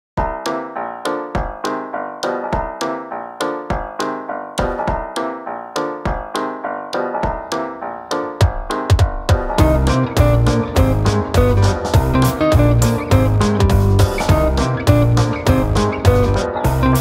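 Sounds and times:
background music with quick sharp notes: 0:00.2 - 0:17.0.

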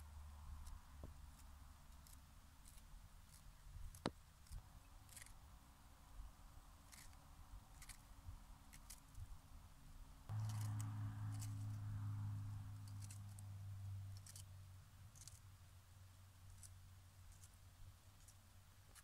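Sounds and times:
knife cutting lettuce: 0:10.3 - 0:11.7.

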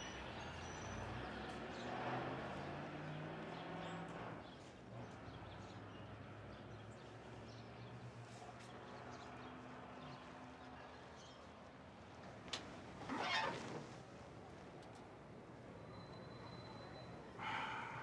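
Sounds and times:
distant traffic hum: 0:00.0 - 0:18.0
faint high chirps: 0:15.8 - 0:18.0.

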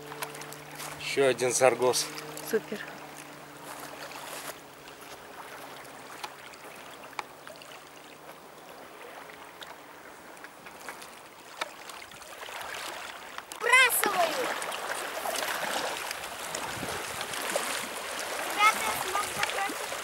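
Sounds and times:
surf washing on pebbles: 0:08.2 - 0:20.0.

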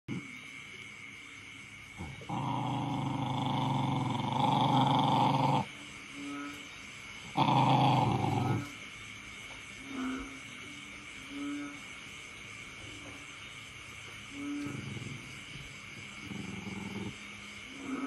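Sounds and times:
dog growling: 0:02.0 - 0:05.7, 0:07.2 - 0:08.8, 0:14.6 - 0:18.0.

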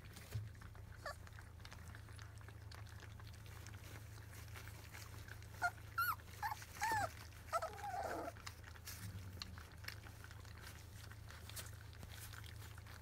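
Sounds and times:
puppies lapping at a dish: 0:00.0 - 0:13.0
puppies whimpering and squealing: 0:00.6 - 0:13.0.

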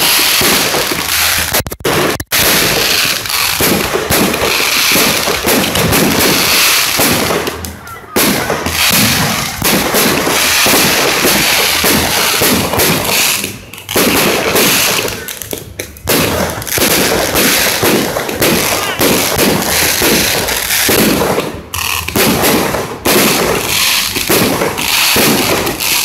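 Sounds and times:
fireworks barrage: 0:00.0 - 0:26.0.

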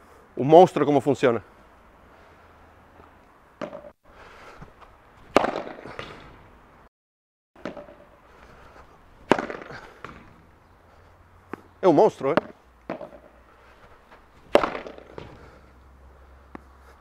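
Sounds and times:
padel ball struck by racket: 0:03.6 - 0:03.9, 0:05.2 - 0:06.4, 0:07.6 - 0:08.2, 0:09.2 - 0:10.6, 0:12.3 - 0:13.4, 0:14.4 - 0:15.7.

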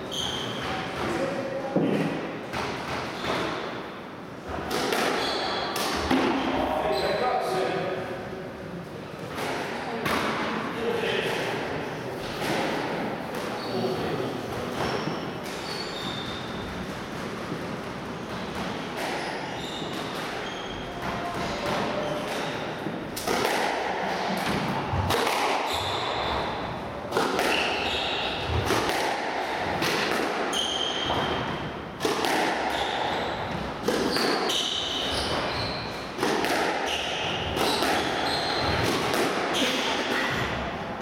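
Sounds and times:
squash ball hitting rackets: 0:00.2 - 0:03.8, 0:04.4 - 0:06.6, 0:09.3 - 0:10.5, 0:12.2 - 0:13.6, 0:14.5 - 0:40.7
shoes squeaking on wooden floor: 0:13.5 - 0:16.7, 0:18.8 - 0:22.6, 0:25.7 - 0:26.7, 0:32.7 - 0:36.0, 0:36.9 - 0:38.8.

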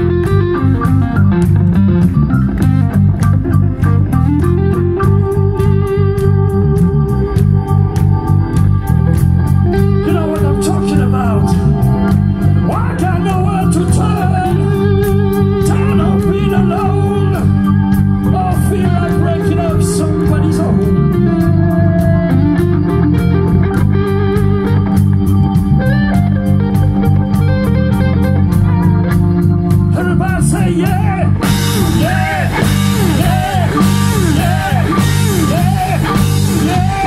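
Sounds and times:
electric guitar: 0:00.0 - 0:37.0
keyboard playing: 0:00.0 - 0:37.0
steady drum beat: 0:00.0 - 0:37.0.

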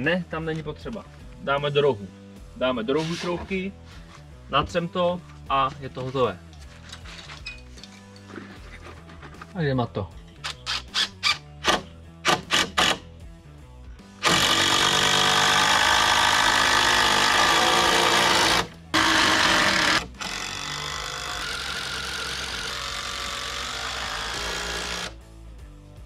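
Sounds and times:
cordless drill driving screws: 0:10.4 - 0:13.0, 0:14.2 - 0:25.2.

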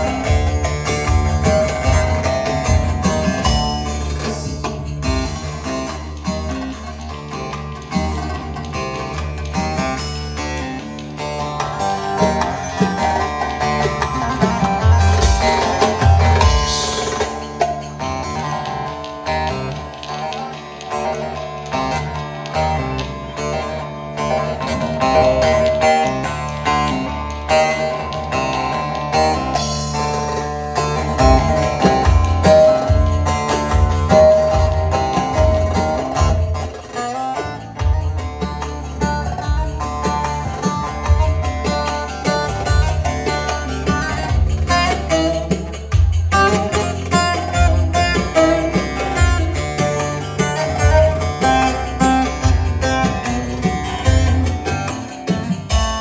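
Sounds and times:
plucked lute melody over loudspeakers: 0:00.0 - 0:56.0
heavy low beat: 0:45.7 - 0:56.0.

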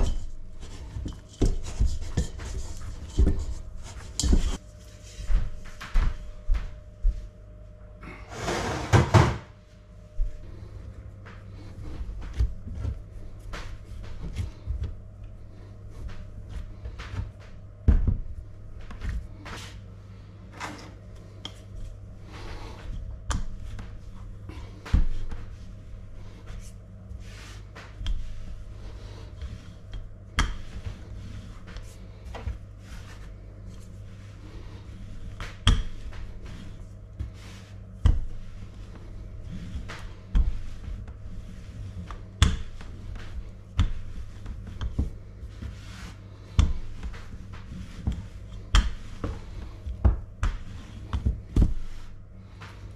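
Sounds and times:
dough pressed by hand: 0:00.0 - 0:04.6, 0:21.4 - 0:52.9
steady low hum: 0:00.0 - 0:52.9.

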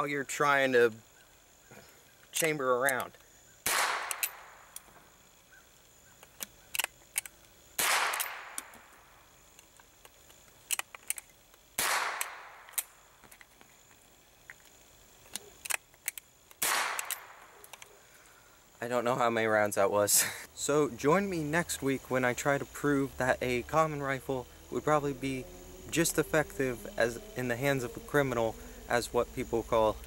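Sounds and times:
rifle bolt metallic clicks: 0:02.2 - 0:04.9, 0:06.2 - 0:08.9, 0:09.6 - 0:13.5, 0:15.2 - 0:18.0
rifle shots echoing: 0:03.6 - 0:04.5, 0:07.8 - 0:08.6, 0:11.8 - 0:12.7, 0:16.6 - 0:17.4.

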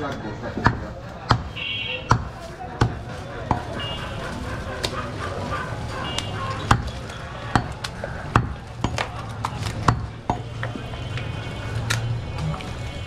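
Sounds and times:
cleaver chopping meat on wood: 0:00.6 - 0:03.8, 0:06.5 - 0:10.8.

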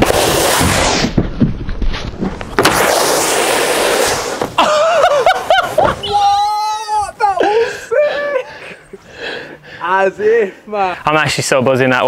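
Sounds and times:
snowboard scraping on plastic matting: 0:00.0 - 0:04.6
person shouting: 0:05.9 - 0:08.5.

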